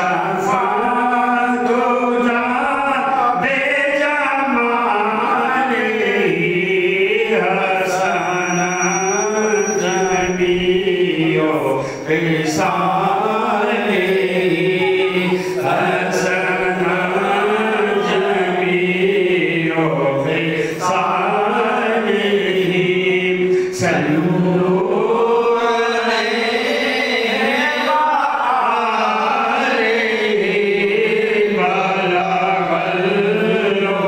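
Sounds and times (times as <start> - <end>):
man singing devotional chant: 0.0 - 34.0
singer breathing: 11.7 - 12.1, 15.2 - 15.7, 23.4 - 23.8.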